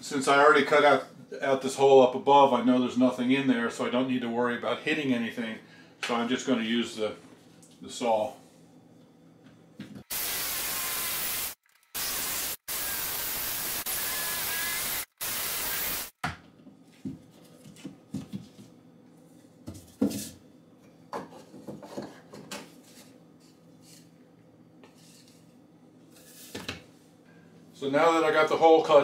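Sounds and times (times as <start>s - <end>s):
power saw cutting: 10.1s - 16.1s
light knocks and scrapes: 21.2s - 24.1s.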